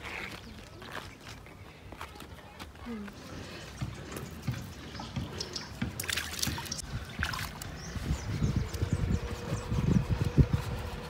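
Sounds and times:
stream water trickling: 5.9s - 7.9s
splashing of feet in water: 6.0s - 7.7s.

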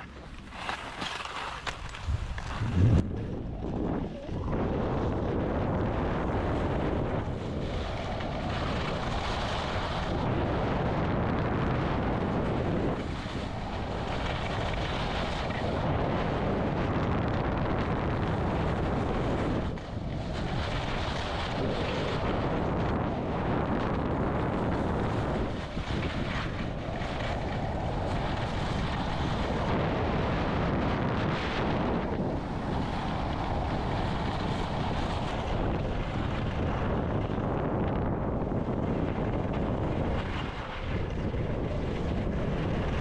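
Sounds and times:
skis scraping over snow: 0.0s - 4.4s, 5.6s - 43.0s
wind rushing over microphone: 0.0s - 43.0s.

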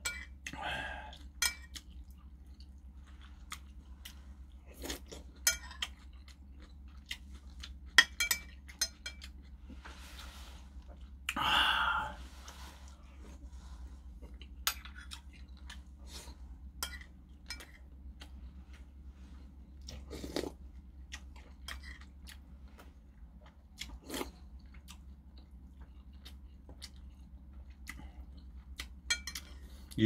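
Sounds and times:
person chewing: 0.2s - 30.0s
person sipping: 9.7s - 13.9s.

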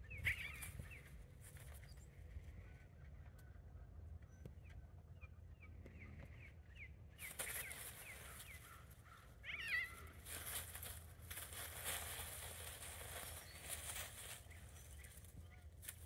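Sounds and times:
bird chirping: 0.0s - 2.2s, 12.5s - 15.8s
dry leaves rustling and crackling: 7.2s - 16.0s.

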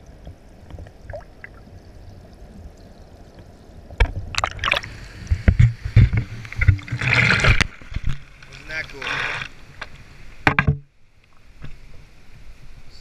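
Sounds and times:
knocks and splashing water: 4.0s - 10.9s.

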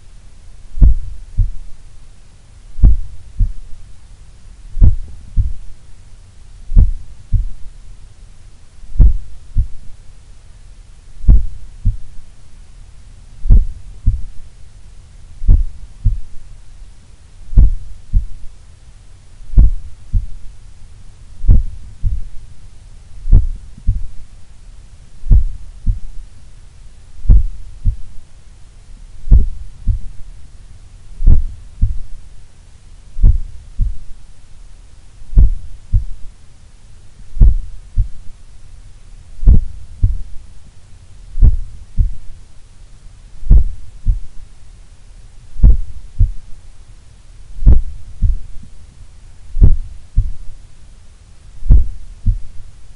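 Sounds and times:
heartbeat through stethoscope: 0.8s - 1.8s, 2.8s - 3.8s, 4.8s - 5.8s, 6.7s - 7.7s, 8.9s - 9.9s, 11.2s - 12.2s, 13.4s - 14.4s, 15.4s - 16.4s, 17.5s - 18.5s, 19.5s - 20.5s, 21.4s - 22.4s, 23.3s - 24.2s, 25.2s - 26.2s, 27.2s - 28.2s, 29.2s - 30.2s, 31.2s - 32.2s, 33.2s - 34.2s, 35.3s - 36.3s, 37.3s - 38.3s, 39.4s - 40.4s, 41.4s - 42.4s, 43.4s - 44.4s, 45.5s - 46.5s, 47.6s - 48.7s, 49.6s - 50.6s, 51.6s - 52.6s.

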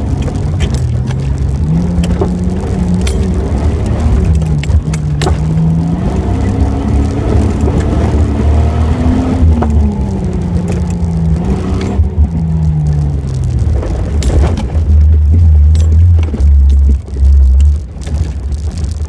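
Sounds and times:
sharp knocks and rattles: 0.0s - 5.9s, 13.0s - 19.0s
low rumble of vehicle ride: 0.0s - 19.0s
off-road vehicle engine: 0.0s - 19.0s.

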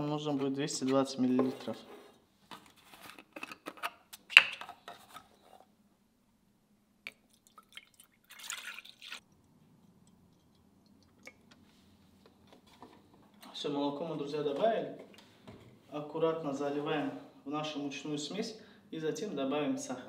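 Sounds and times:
milk pouring: 7.1s - 11.6s.

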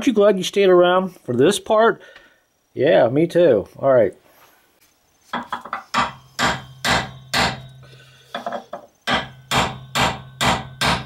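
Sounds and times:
hammer striking steel chisel: 5.4s - 11.0s.

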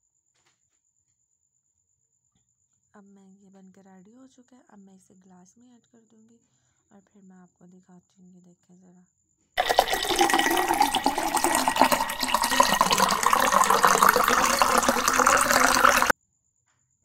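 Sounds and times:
liquid pouring into glass over ice: 9.6s - 16.1s.

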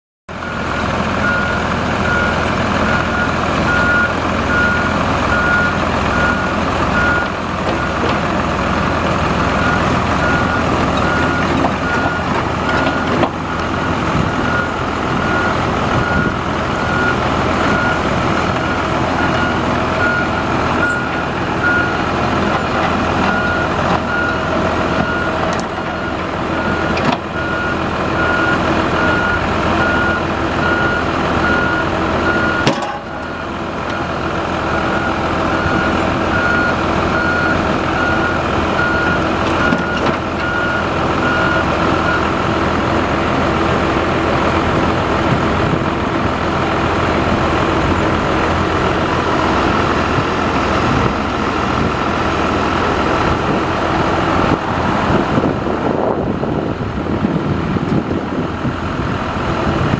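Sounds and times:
diesel engine running: 0.3s - 59.9s
travel alarm beeping: 0.4s - 7.3s, 14.4s - 22.0s.

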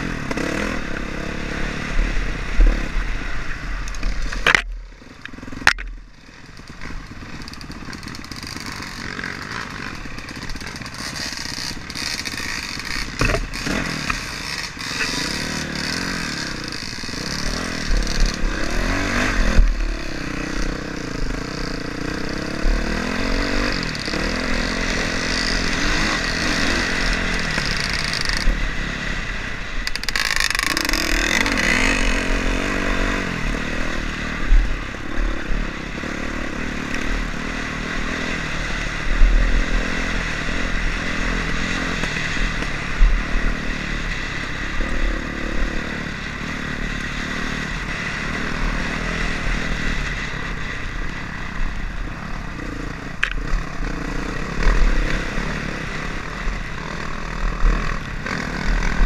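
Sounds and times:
motorcycle engine revving: 0.0s - 59.0s
motorcycle knocking over rough ground: 5.6s - 9.1s, 10.1s - 14.2s.

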